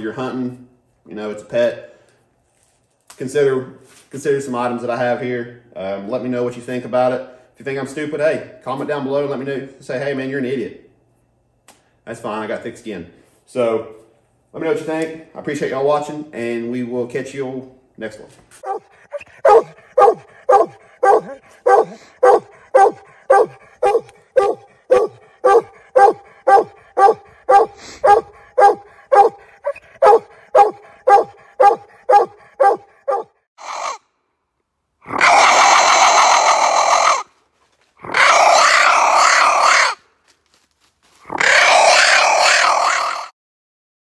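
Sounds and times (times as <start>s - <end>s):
dog barking: 18.6s - 33.3s.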